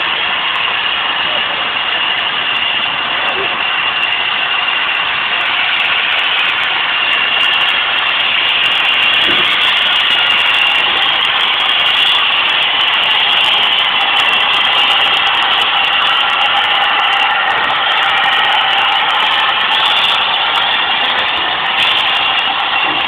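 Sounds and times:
steam hissing: 0.0s - 23.0s.

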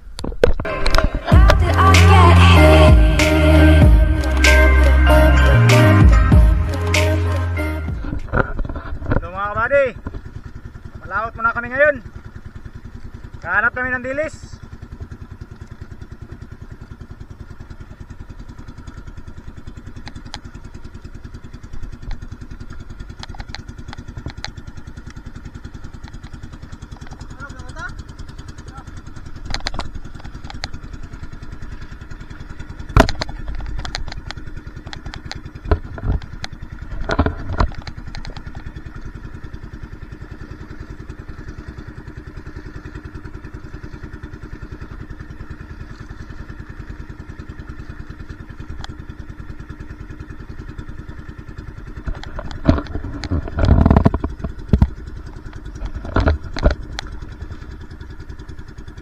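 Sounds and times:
boat engine running: 0.0s - 59.0s
sharp knocks and clatters: 32.8s - 38.9s, 52.0s - 57.3s.

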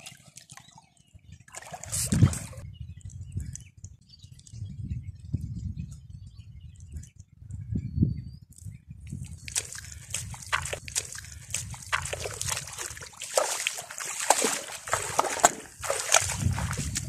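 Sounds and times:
splashing in muddy water: 0.0s - 2.6s, 9.1s - 17.0s
footsteps squelching in mud: 9.1s - 17.0s.

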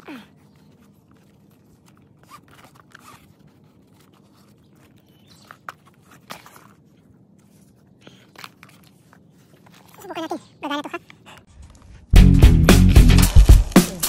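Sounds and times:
strap scraping through buckle: 0.8s - 10.0s.

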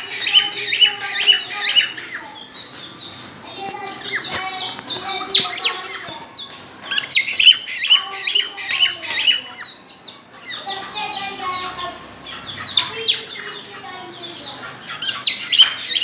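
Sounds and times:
cockatiels chirping and whistling: 3.8s - 11.7s, 12.4s - 16.0s.

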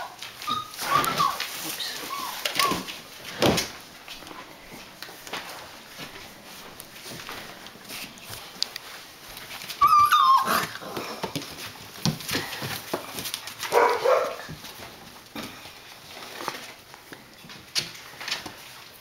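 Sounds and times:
puppy yelping: 0.0s - 2.9s, 9.8s - 10.9s, 13.7s - 14.4s
paws scuffling on newspaper: 0.0s - 19.0s
puppy rough cry: 9.8s - 11.3s.

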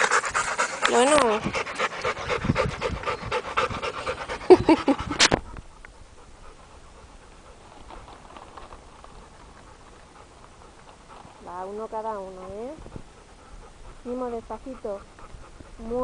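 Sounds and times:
dog vocal sound: 0.0s - 5.5s
dog panting: 0.0s - 16.0s.

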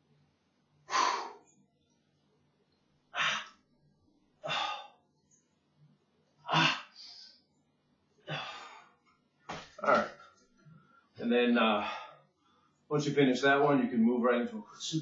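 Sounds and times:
man breathing hard under exertion: 0.9s - 1.6s, 4.4s - 5.0s, 8.3s - 9.0s.

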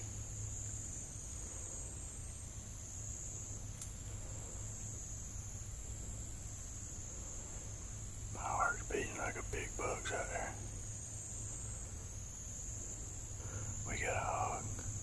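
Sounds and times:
faint low hum: 0.0s - 15.0s
high-pitched insect chorus: 0.0s - 15.0s.

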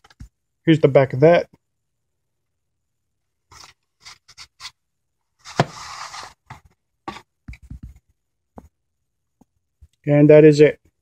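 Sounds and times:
plastic and cardboard scraping: 5.4s - 8.0s.

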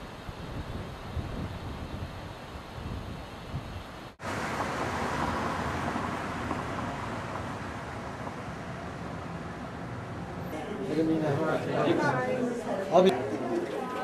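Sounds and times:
wind rumble on microphone: 0.0s - 4.2s
street traffic hiss: 0.0s - 14.0s
car driving by: 4.2s - 10.8s.

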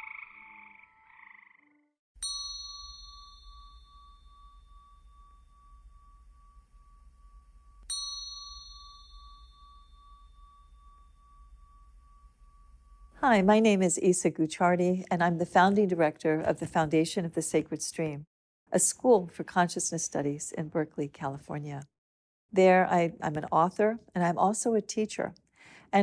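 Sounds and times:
bell ringing: 2.2s - 13.1s.

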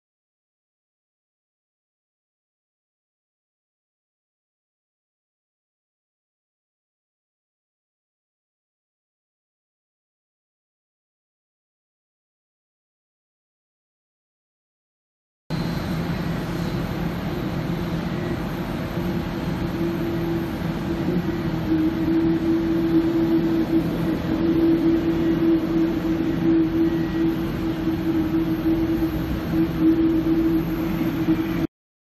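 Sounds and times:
jet engine taxiing: 15.5s - 31.7s.

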